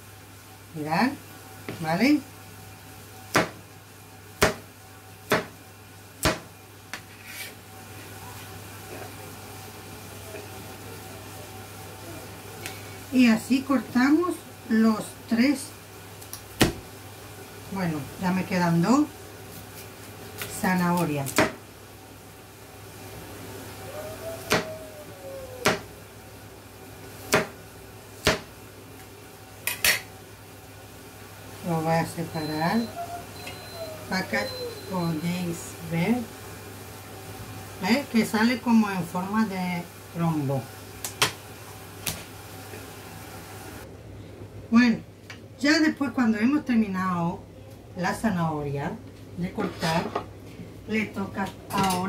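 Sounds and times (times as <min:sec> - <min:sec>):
cleaver chopping carrot on board: 0:05.3 - 0:05.5, 0:25.6 - 0:25.9, 0:27.3 - 0:27.6.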